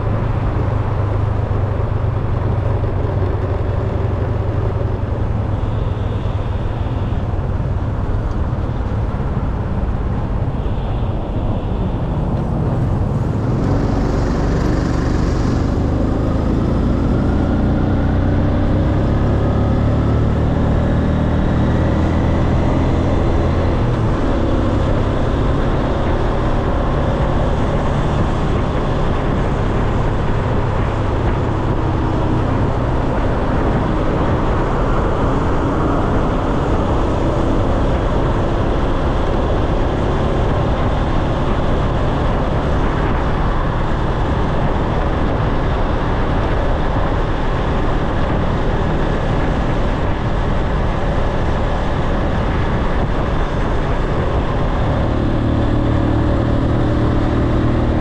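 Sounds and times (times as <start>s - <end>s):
scooter engine hum: 0.0s - 18.5s
road noise: 0.0s - 58.0s
wind rushing over microphone: 0.0s - 58.0s.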